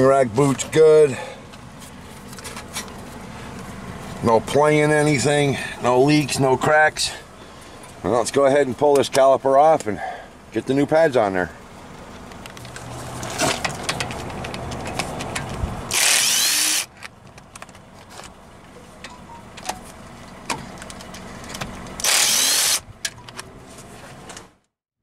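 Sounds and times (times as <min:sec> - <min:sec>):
power tool spinning socket: 0:15.9 - 0:16.9, 0:22.0 - 0:22.8.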